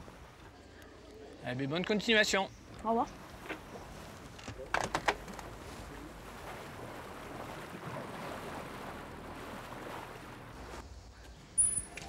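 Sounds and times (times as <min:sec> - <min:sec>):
wind and sea rushing: 0:02.4 - 0:11.6.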